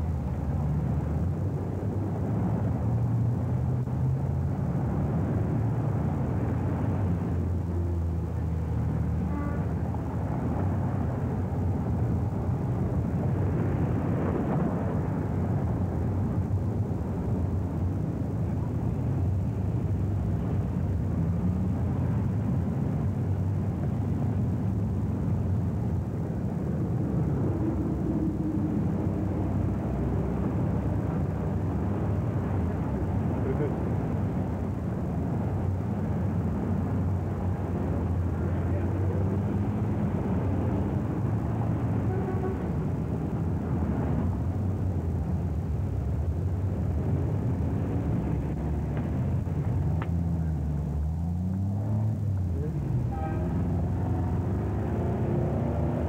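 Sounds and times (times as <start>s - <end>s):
cars driving past: 18.5s - 56.0s.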